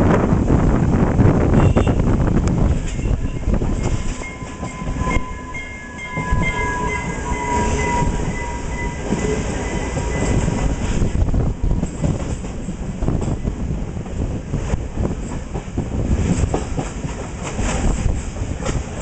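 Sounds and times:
train wheels clattering on rails: 0:02.3 - 0:19.0
thin high tone: 0:02.9 - 0:10.7.

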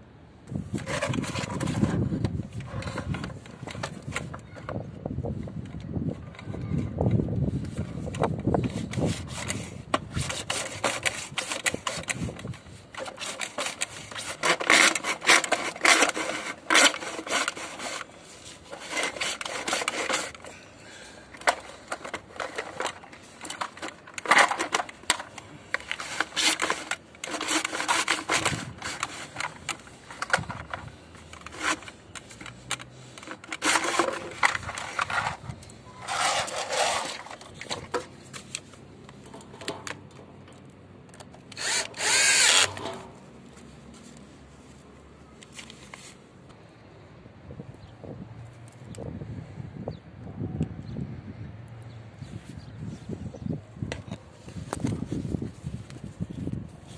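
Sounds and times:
hand saw cutting plastic: 0:00.7 - 0:04.4, 0:08.2 - 0:20.6, 0:21.3 - 0:38.1, 0:41.5 - 0:43.2.

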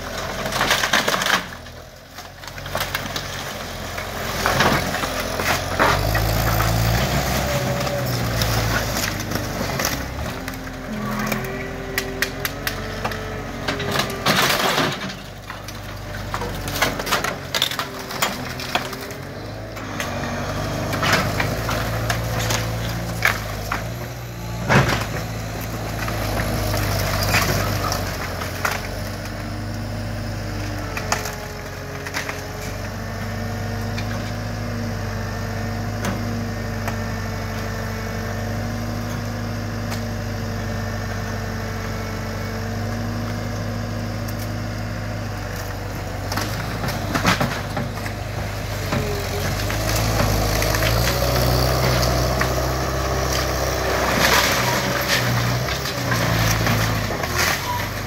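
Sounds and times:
debris knocks and crunches: 0:00.0 - 0:34.5, 0:45.4 - 0:58.0
diesel engine running: 0:00.0 - 0:58.0.

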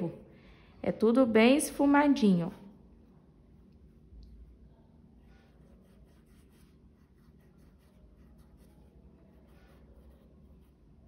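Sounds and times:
paintbrush scratching on fabric: 0:03.0 - 0:11.0.

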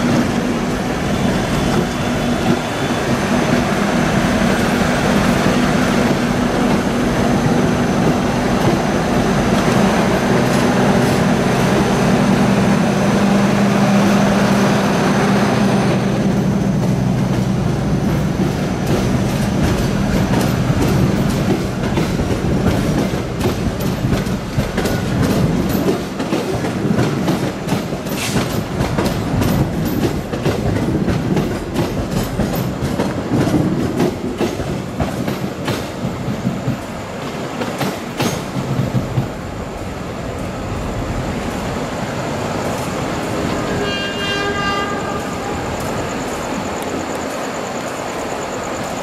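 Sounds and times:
train wheels clicking over rail joints: 0:00.0 - 0:14.6, 0:15.9 - 0:39.7
train rumble: 0:00.0 - 0:49.0
pulsing train horn: 0:43.4 - 0:46.0.

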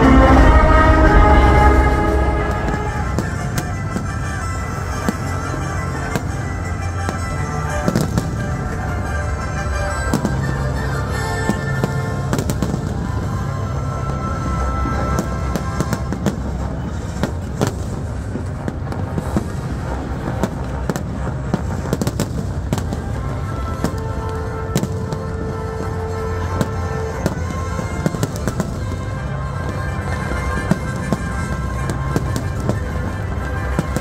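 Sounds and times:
low rumble: 0:00.0 - 0:05.8
fireworks bursting: 0:00.0 - 0:34.0
orchestral music: 0:00.0 - 0:34.0.

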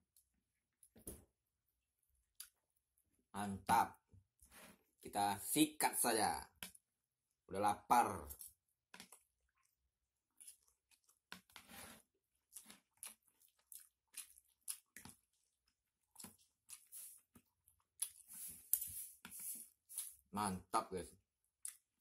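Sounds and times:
chewing and crunching: 0:08.2 - 0:20.3, 0:21.5 - 0:22.0.

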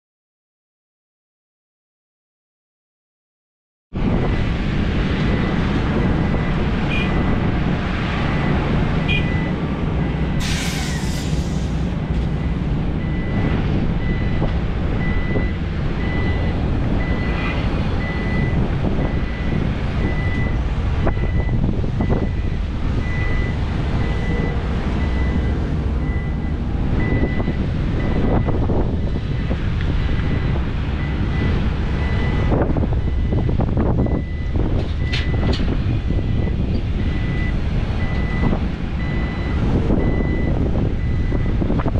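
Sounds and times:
heavy diesel engines: 0:04.0 - 0:41.9
reversing alarm beeping: 0:08.3 - 0:29.6, 0:30.3 - 0:41.6
air hiss: 0:10.4 - 0:11.9.

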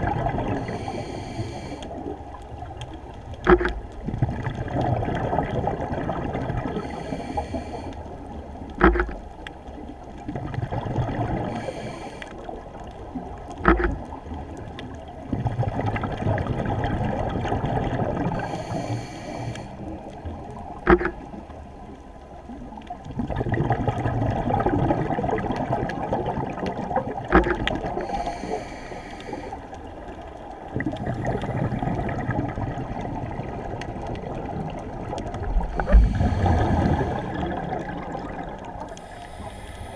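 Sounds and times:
exhale bubbling rumble: 0:00.0 - 0:09.3, 0:09.9 - 0:21.7, 0:22.4 - 0:39.9
regulator inhale hiss: 0:00.5 - 0:02.0, 0:06.8 - 0:08.2, 0:11.4 - 0:12.5, 0:18.4 - 0:20.0, 0:28.0 - 0:29.8, 0:35.7 - 0:37.3, 0:38.9 - 0:39.9.

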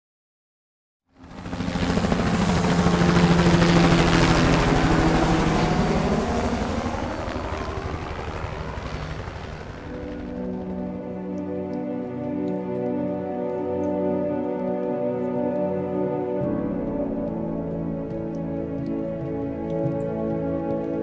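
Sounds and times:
rotor aircraft whirring: 0:01.2 - 0:11.7
soft music: 0:01.2 - 0:21.0.

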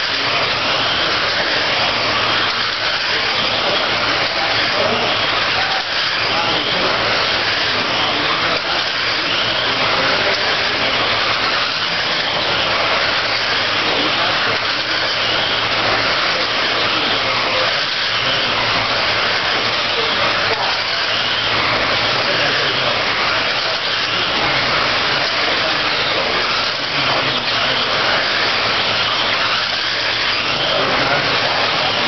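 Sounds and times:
rc car motors whirring: 0:00.0 - 0:32.0.

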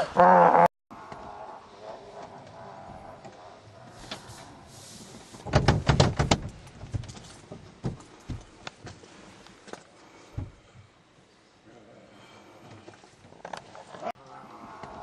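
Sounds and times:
car door rattling and knocking: 0:05.4 - 0:08.4.

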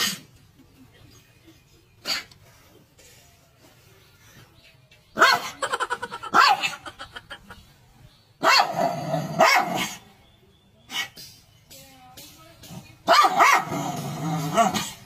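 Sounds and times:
dog barking: 0:05.2 - 0:05.6, 0:06.3 - 0:06.9, 0:08.4 - 0:10.0, 0:13.0 - 0:15.0.

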